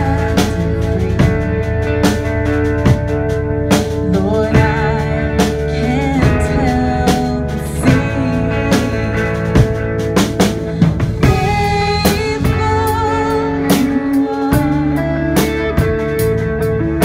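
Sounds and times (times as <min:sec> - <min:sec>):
person singing: 0:00.0 - 0:01.7, 0:03.8 - 0:10.0, 0:10.6 - 0:16.1
drum kit beat: 0:00.0 - 0:17.0
electric guitars: 0:00.0 - 0:17.0.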